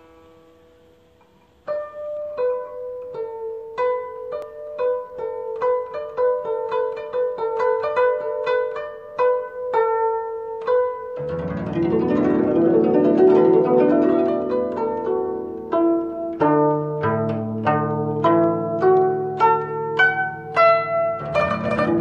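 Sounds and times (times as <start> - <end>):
plucked string melody: 0.0 - 22.0
lower accompaniment: 10.6 - 22.0.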